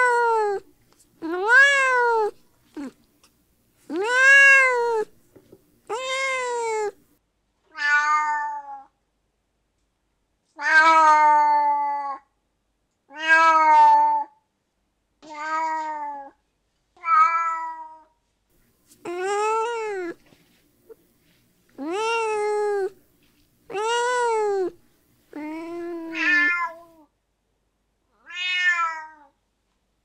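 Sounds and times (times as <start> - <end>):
cat meowing: 0.0 - 3.0, 3.9 - 5.2, 5.9 - 7.0, 7.7 - 8.9, 13.1 - 14.3, 17.0 - 18.0, 19.1 - 20.2, 21.8 - 23.0, 23.7 - 27.0, 28.2 - 29.3.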